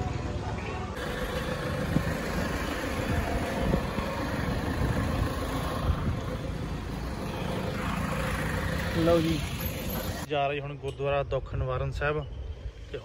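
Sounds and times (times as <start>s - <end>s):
vehicle engine idling: 1.0s - 10.3s.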